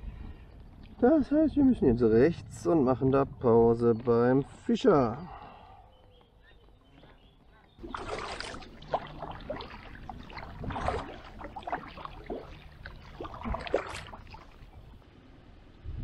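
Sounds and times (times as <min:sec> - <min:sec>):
kayak paddle strokes splashing: 0:07.8 - 0:15.0
water dripping: 0:07.8 - 0:15.0.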